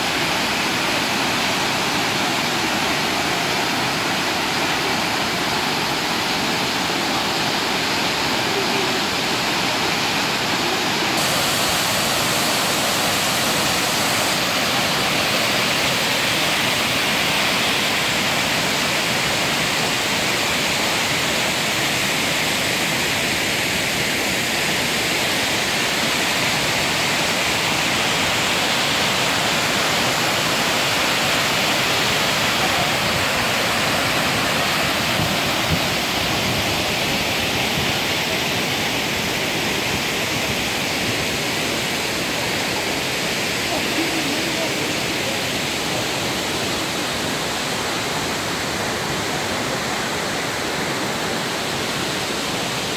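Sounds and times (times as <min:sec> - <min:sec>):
waterfall rushing: 0:00.0 - 0:52.9.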